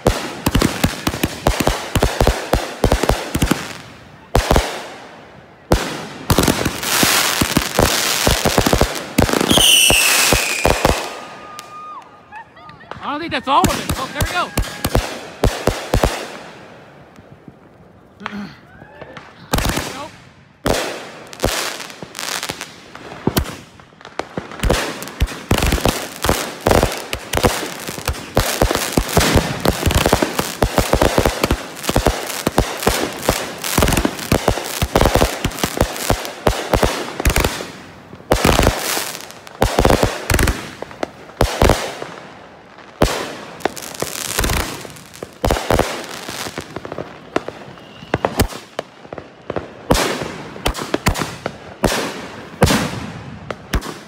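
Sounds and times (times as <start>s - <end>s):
firework aerial bangs: 20.6s - 42.0s.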